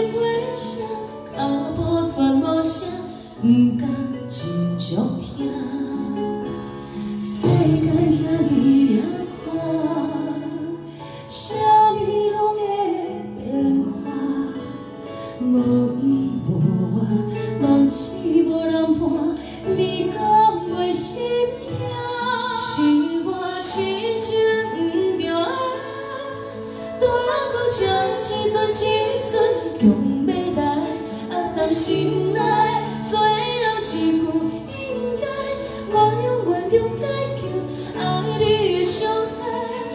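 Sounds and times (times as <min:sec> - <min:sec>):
women singing a duet: 0:00.0 - 0:39.9
backing music: 0:04.4 - 0:12.1.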